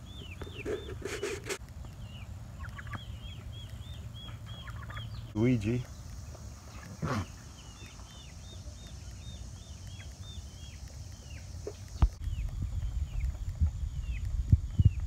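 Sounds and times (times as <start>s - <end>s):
bird chirping: 0.0s - 15.0s
low rumble: 12.2s - 15.0s.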